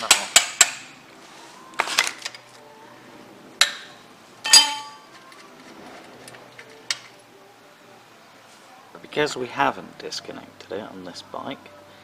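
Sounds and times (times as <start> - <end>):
metal hand tools clinking: 4.4 - 5.2.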